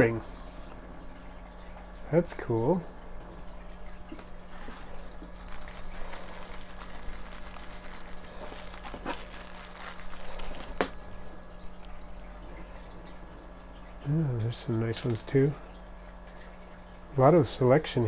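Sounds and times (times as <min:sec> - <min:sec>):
plastic bag rustling: 0:04.4 - 0:11.4
paper crinkling: 0:04.5 - 0:11.2.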